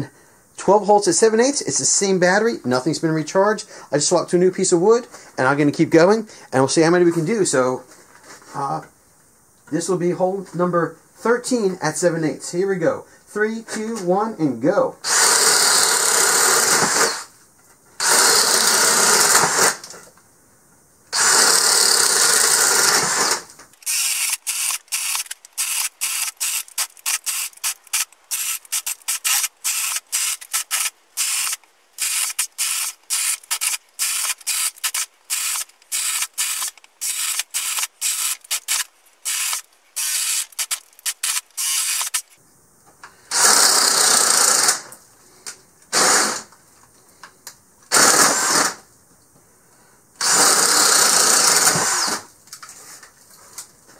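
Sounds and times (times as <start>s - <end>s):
drill boring through wood: 15.0s - 17.3s, 18.0s - 19.8s, 21.2s - 42.3s, 43.3s - 44.9s, 45.9s - 46.4s, 47.9s - 48.8s, 50.2s - 52.3s.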